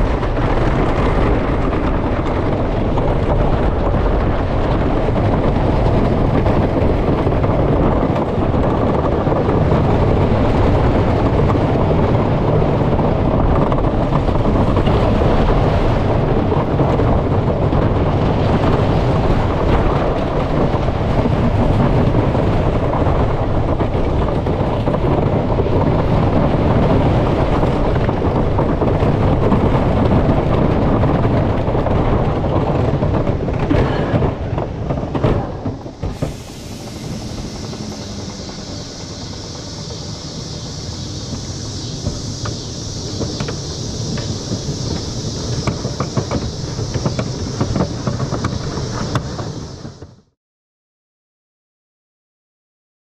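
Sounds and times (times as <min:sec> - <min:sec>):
roller coaster wheels clattering: 0:00.0 - 0:50.2
steady high hiss: 0:35.7 - 0:50.0.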